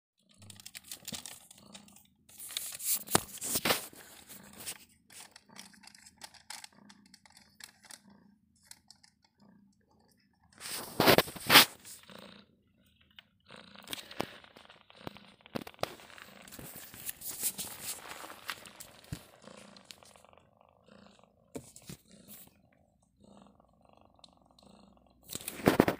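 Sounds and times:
plastic sheet crinkling: 0.4 - 6.6, 10.6 - 12.0, 13.9 - 20.2.

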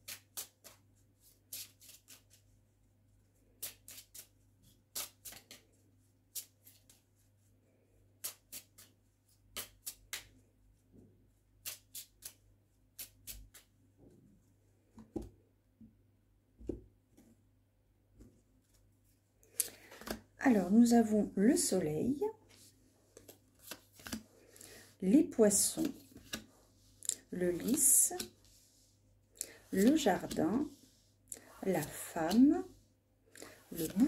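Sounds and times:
cards snapping and flicking: 4.9 - 5.6, 9.5 - 10.4.

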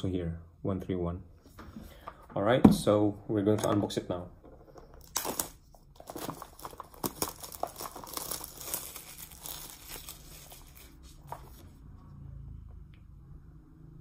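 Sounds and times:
packaging tearing and crinkling: 5.0 - 11.6.

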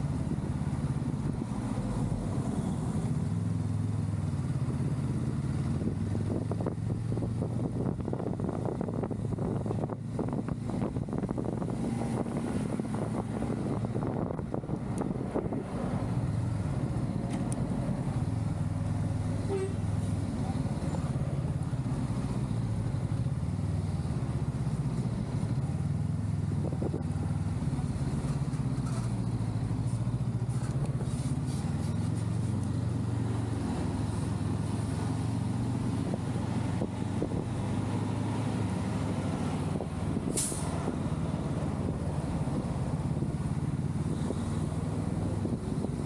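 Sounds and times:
short sharp hiss: 40.3 - 40.8.

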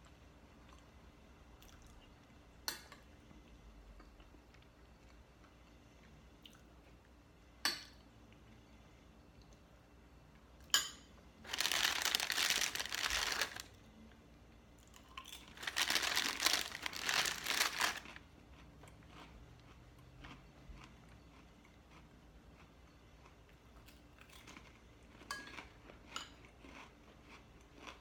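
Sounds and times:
plastic packaging crinkling: 11.5 - 13.7, 15.4 - 18.2.

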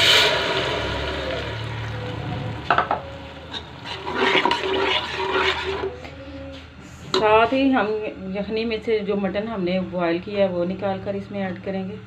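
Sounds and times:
metal spatula scraping pot: 3.5 - 6.0.

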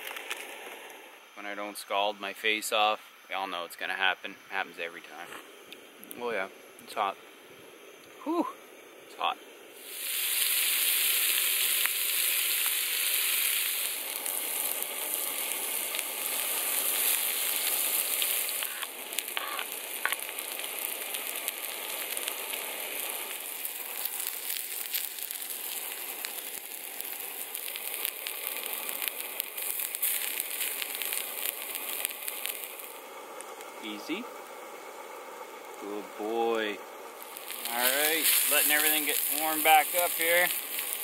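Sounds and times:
food sizzling in skillet: 9.5 - 41.0
small pops and spits: 9.8 - 22.4, 23.0 - 33.7.

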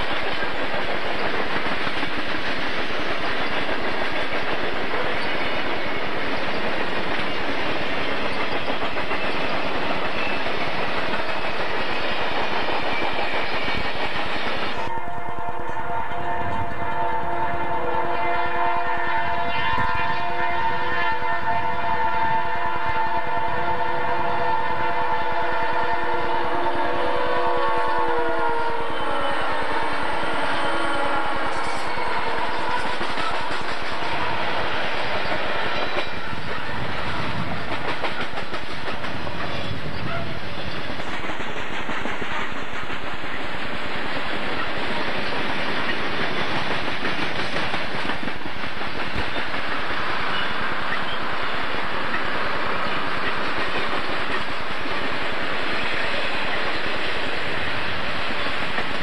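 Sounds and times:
wheels clattering on rails: 0.0 - 14.9, 31.5 - 50.0
freight train rumble: 0.0 - 59.0
locomotive air horn: 14.8 - 34.9, 40.0 - 40.5.

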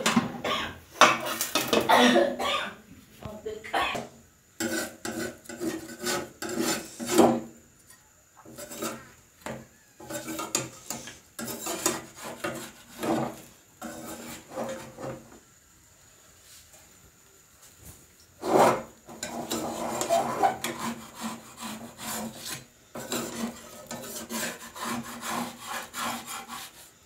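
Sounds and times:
metal spatula scraping a pan: 1.0 - 1.9, 4.6 - 7.5, 8.4 - 15.4, 18.4 - 26.9.

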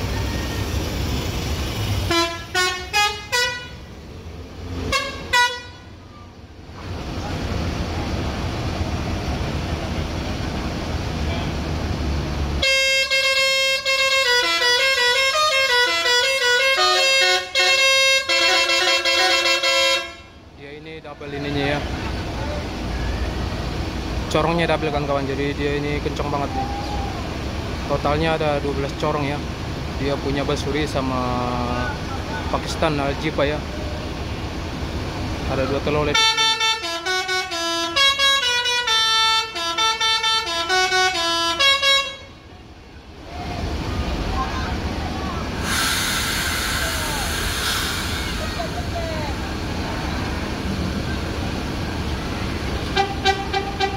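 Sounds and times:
musical air horn tune: 2.1 - 3.8, 4.9 - 5.9, 12.6 - 20.3, 36.1 - 42.4, 52.9 - 53.9.

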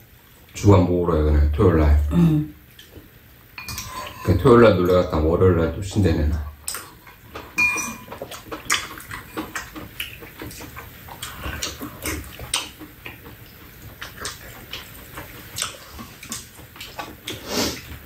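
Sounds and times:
spoons clicking on ceramic bowls: 3.6 - 4.4, 7.6 - 8.2
people chewing and lip-smacking: 6.4 - 18.0.

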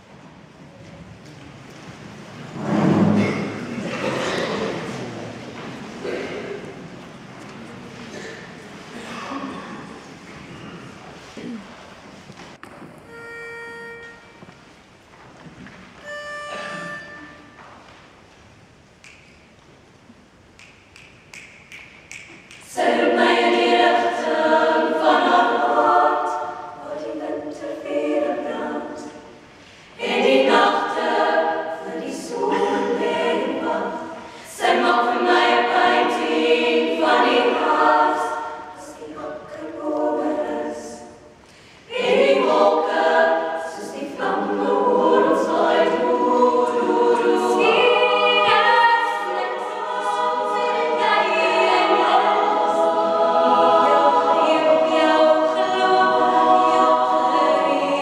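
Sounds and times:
women's choir singing: 22.6 - 58.0.

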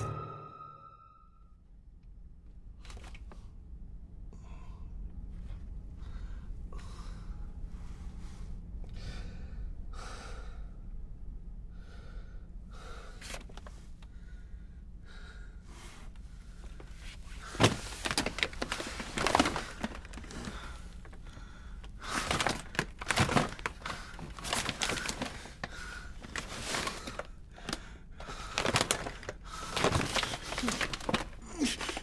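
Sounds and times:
steady low hum: 0.0 - 22.8.

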